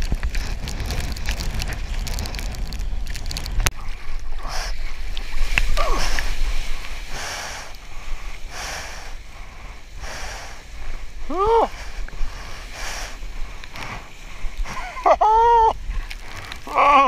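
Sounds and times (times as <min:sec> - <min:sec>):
water splashing around surfboard: 0:00.0 - 0:07.2
surf breaking on shore: 0:00.0 - 0:16.8
wind buffeting microphone: 0:00.0 - 0:17.0.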